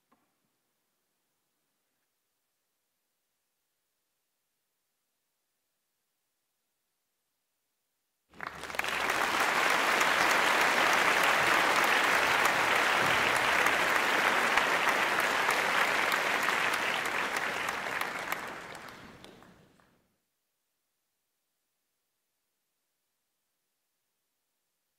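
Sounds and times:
audience applauding: 8.3s - 19.9s.

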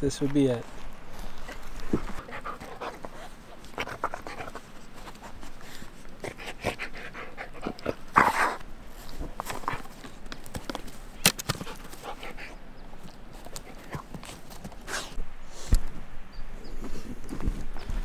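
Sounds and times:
dog panting: 1.2s - 9.9s, 11.6s - 12.6s, 13.4s - 15.2s.

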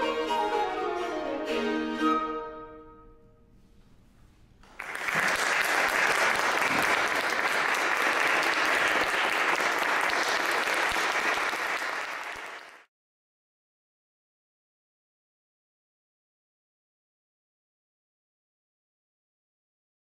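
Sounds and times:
audience applause: 4.6s - 12.9s.

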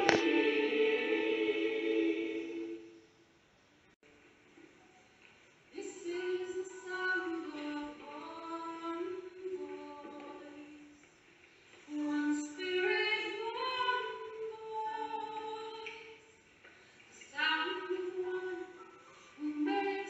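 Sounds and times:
woman singing unaccompanied: 5.7s - 10.9s, 11.9s - 16.2s, 17.2s - 20.0s.

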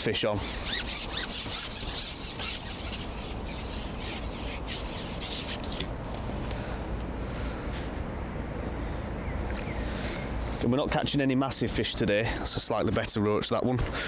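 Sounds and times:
fishing pole rasping rub: 0.4s - 5.9s.

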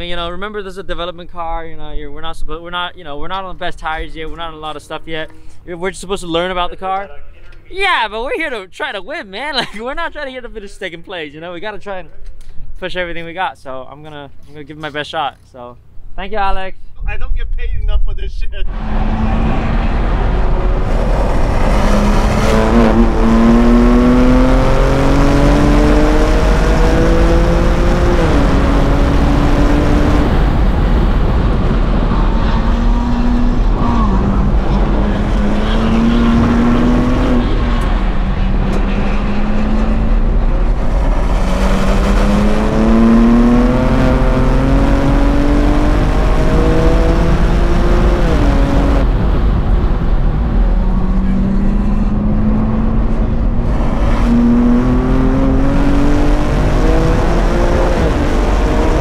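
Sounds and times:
car engine accelerating: 18.6s - 59.0s.

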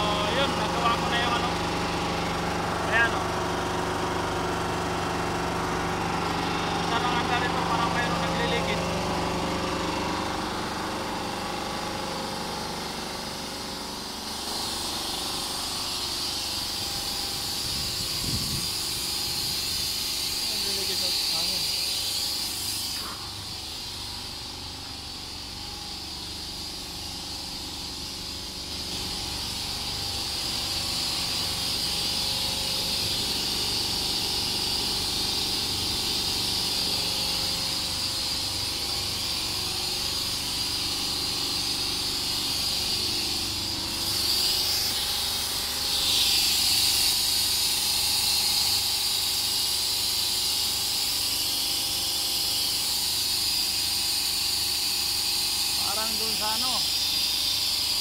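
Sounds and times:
compressed air hissing: 13.4s - 58.0s.

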